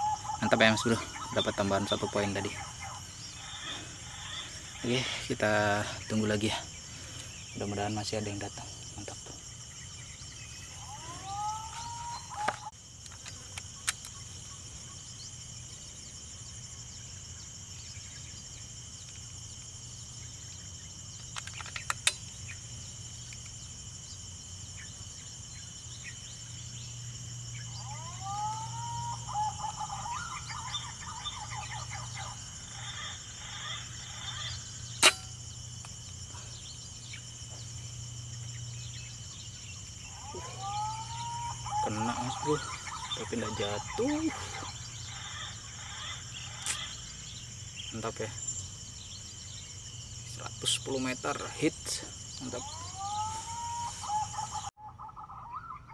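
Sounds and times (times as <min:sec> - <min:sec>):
insects droning: 0:00.0 - 0:55.9
whistled bird calls: 0:10.1 - 0:12.7, 0:27.6 - 0:35.3, 0:40.1 - 0:47.0, 0:52.4 - 0:55.9.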